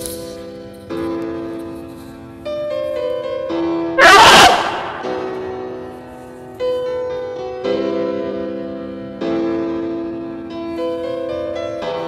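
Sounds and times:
sustained piano chords: 0.5s - 12.0s.

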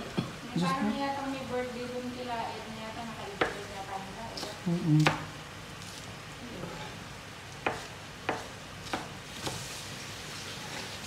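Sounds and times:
meat frying in a pan: 7.2s - 11.0s
knife tapping on cutting board: 7.6s - 9.6s.

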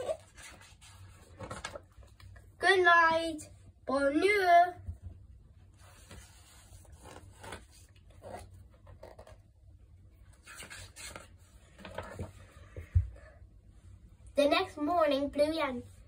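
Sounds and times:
paper book rubbing and scraping: 0.0s - 1.8s, 5.8s - 9.4s, 10.4s - 12.4s.

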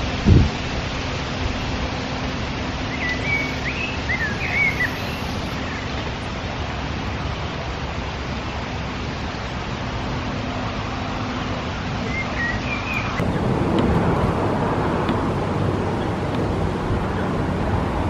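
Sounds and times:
wind noise on microphone: 0.0s - 18.0s
small bird chirping: 2.9s - 6.1s, 12.1s - 13.3s.

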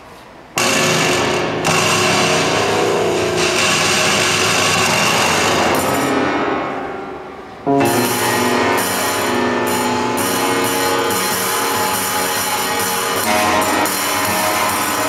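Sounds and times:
prepared piano chord ringing: 5.7s - 10.5s.

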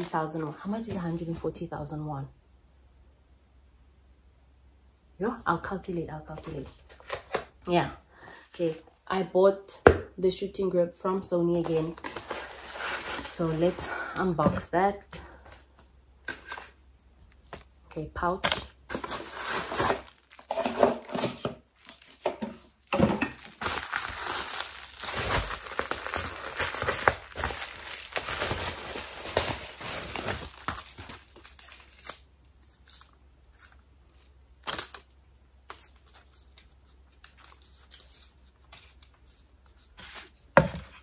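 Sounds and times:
bubble wrap crinkling: 0.0s - 1.4s, 11.6s - 13.9s, 18.7s - 21.1s, 21.8s - 40.4s.

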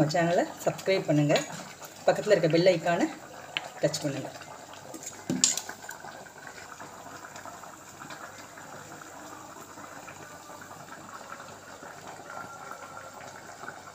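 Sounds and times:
curry bubbling in a pot: 0.0s - 13.9s.

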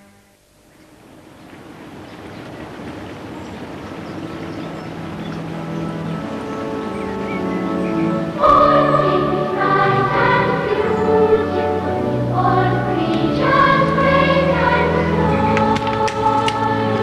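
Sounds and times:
choir singing held chords: 5.6s - 17.0s.

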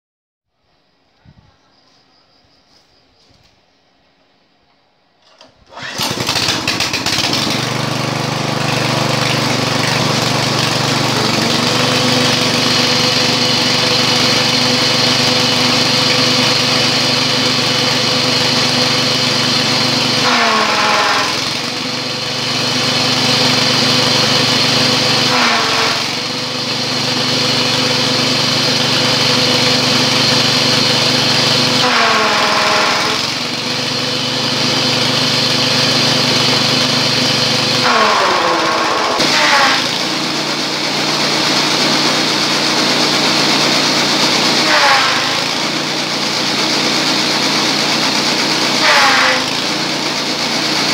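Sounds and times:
engine pull-start: 5.2s - 12.6s
small petrol engine running: 5.2s - 50.9s.

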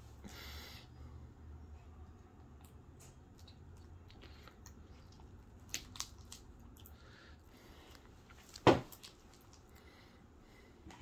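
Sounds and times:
slime squishing and crackling: 5.2s - 6.9s.

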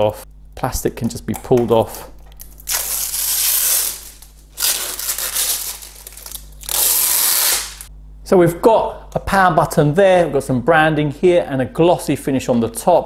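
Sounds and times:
plastic film being peeled off: 2.4s - 7.9s.

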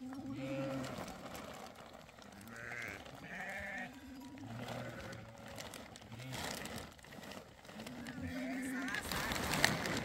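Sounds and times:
baby goats bleating: 2.4s - 4.0s.

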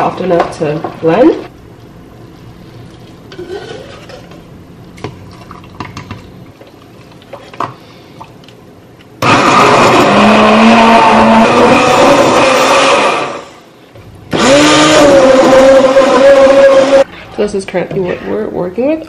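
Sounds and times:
immersion blender running: 9.2s - 13.6s, 14.3s - 17.1s.

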